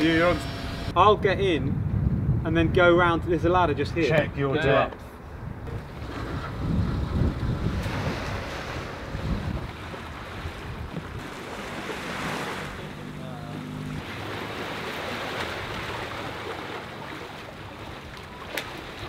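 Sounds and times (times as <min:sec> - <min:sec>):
wind buffeting microphone: 0:00.0 - 0:12.8
river water washing: 0:05.7 - 0:19.0.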